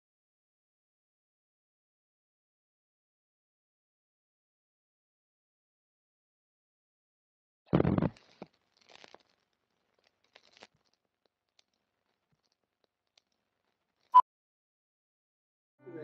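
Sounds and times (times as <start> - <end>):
burst of crackly noise: 7.7 - 13.4
faint crackles and clicks: 7.7 - 14.2.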